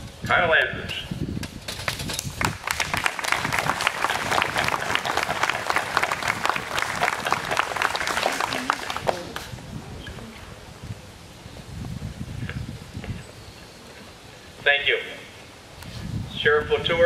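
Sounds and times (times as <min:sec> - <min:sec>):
audience applauding: 0:02.4 - 0:09.5.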